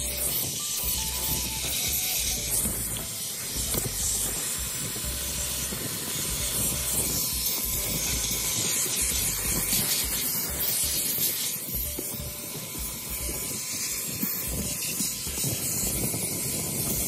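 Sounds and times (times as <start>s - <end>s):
shop vacuum running: 0.0s - 17.0s.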